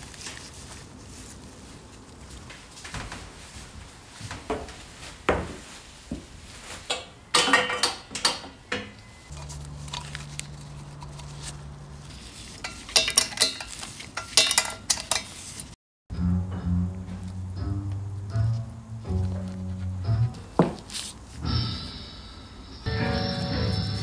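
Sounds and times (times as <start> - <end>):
hand tools clattering on metal: 6.9 - 9.5, 12.6 - 15.4.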